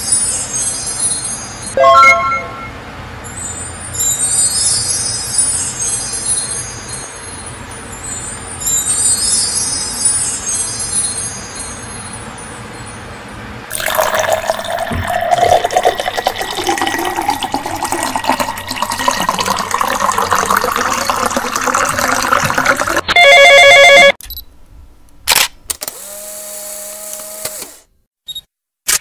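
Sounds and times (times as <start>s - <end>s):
coffee pouring into a cup: 13.7s - 23.0s.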